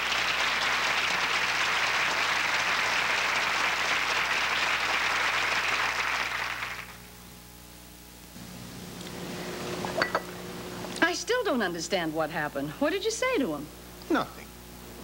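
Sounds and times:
studio audience applauding: 0.0 - 7.1.

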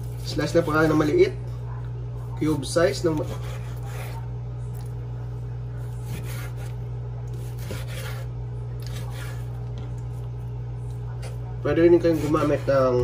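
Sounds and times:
steady low hum: 0.0 - 13.0
knife sawing through meat: 2.9 - 4.2, 6.0 - 9.5, 11.8 - 13.0.

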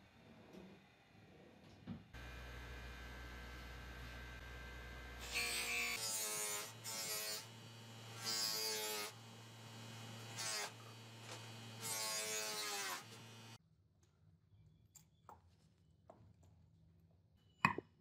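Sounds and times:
bench grinder humming: 2.2 - 13.6.

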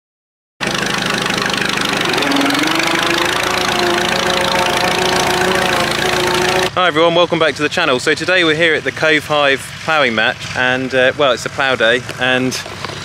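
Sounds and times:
tractor engine running: 0.6 - 13.0
whining tone: 1.4 - 6.8.

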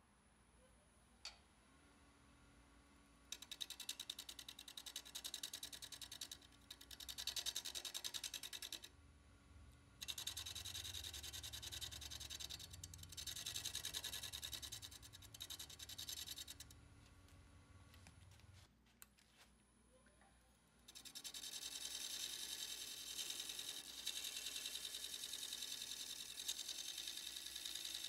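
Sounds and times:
sandpaper rasping on lathe workpiece: 20.9 - 28.0.

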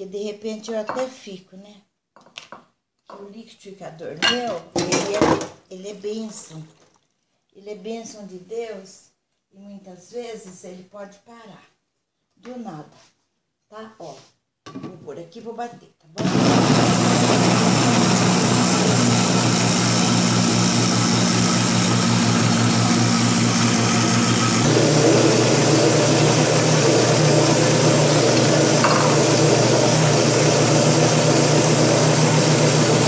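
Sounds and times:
electric blender running: 16.2 - 33.0.

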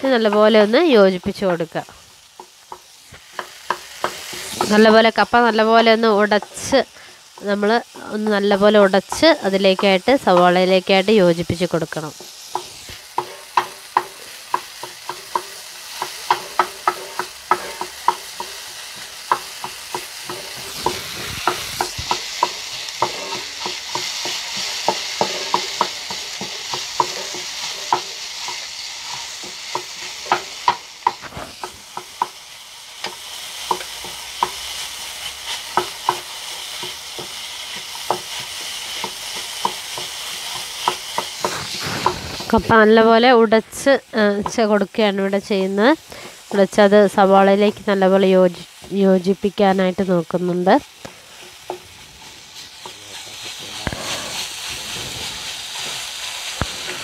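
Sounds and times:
frying sizzle: 0.0 - 57.0
spatula tapping and scraping a pan: 2.3 - 10.7, 12.1 - 42.7, 44.3 - 44.9, 50.8 - 53.0.

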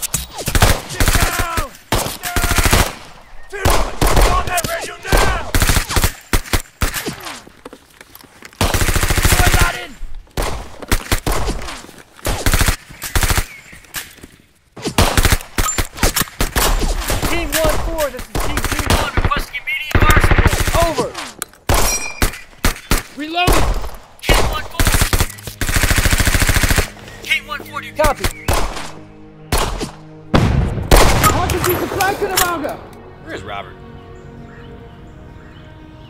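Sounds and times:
men shouting: 0.9 - 2.8, 3.5 - 5.6
rifle shots: 30.4 - 32.0.

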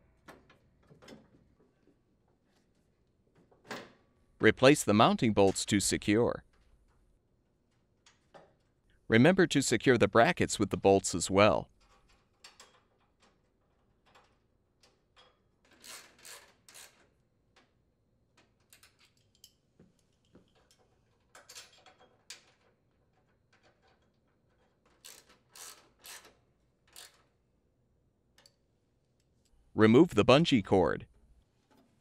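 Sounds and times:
ratchet wrench clicking: 25.0 - 26.3.

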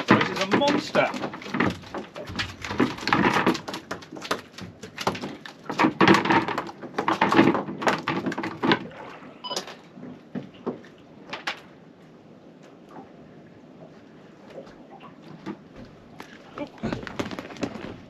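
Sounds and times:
fish flapping against boat: 0.0 - 9.1, 15.3 - 18.0.

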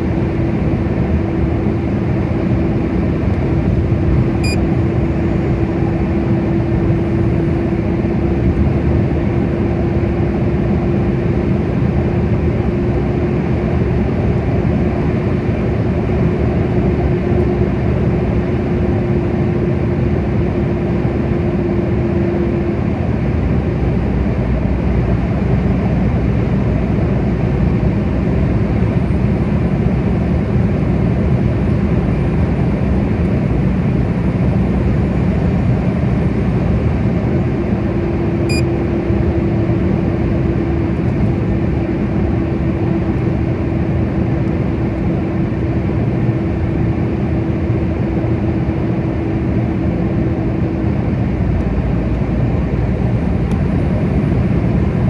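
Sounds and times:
car tyre and engine noise: 0.0 - 55.0
low hum: 25.6 - 55.0.

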